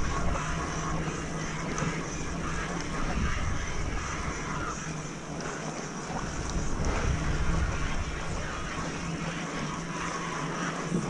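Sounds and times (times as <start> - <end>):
bike tyres rolling on dirt: 0.0 - 11.0
wind on microphone: 0.0 - 11.0.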